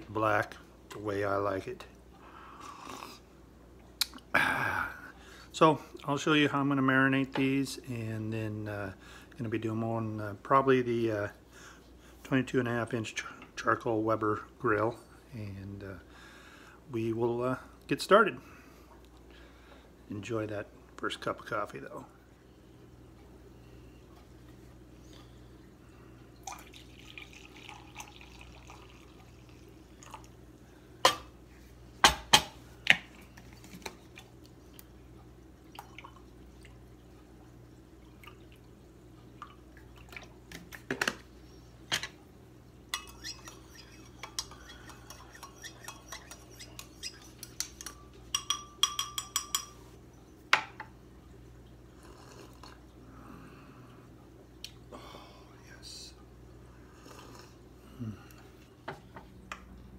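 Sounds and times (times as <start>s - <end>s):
coffee pouring into a mug: 26.4s - 30.4s, 35.7s - 36.8s
spoon clinking against mug: 43.0s - 49.8s.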